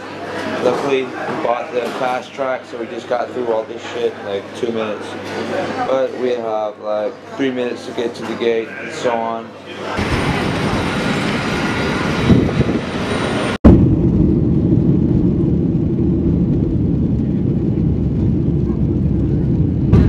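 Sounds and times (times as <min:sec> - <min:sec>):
runway rumble: 0:09.9 - 0:20.0
jet engines at takeoff power: 0:10.0 - 0:20.0.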